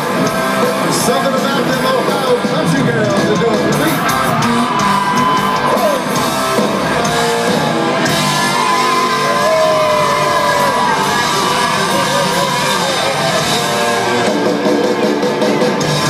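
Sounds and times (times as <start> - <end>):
live country-rock band: 0.0 - 16.0.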